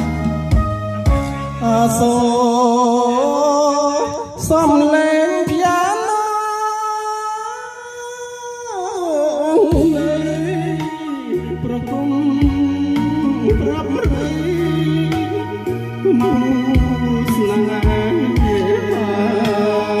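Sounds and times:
heavy bass: 0.0 - 3.7, 9.7 - 20.0
woman singing long wavering notes: 1.6 - 20.0.

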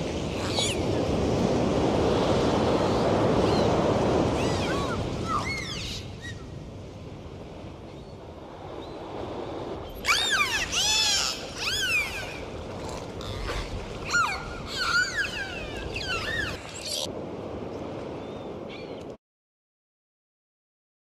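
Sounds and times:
dolphins whistling underwater: 9.9 - 17.1.

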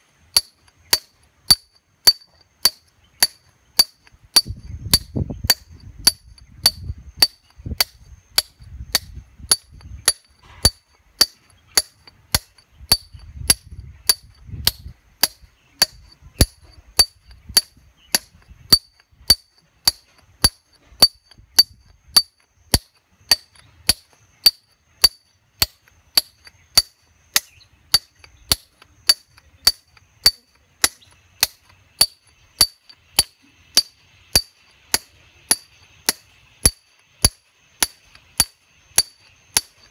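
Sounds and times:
hammer striking steel chisel: 0.3 - 39.9.

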